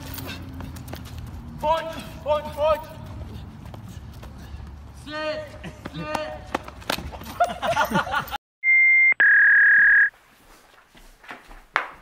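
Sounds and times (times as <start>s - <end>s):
loud electronic beeps: 8.6s - 10.1s.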